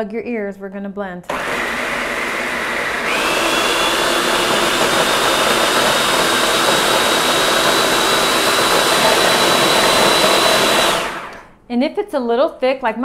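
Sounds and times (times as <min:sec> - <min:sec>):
food processor motor whine: 0:01.3 - 0:11.6
thick paste churning: 0:02.2 - 0:11.5.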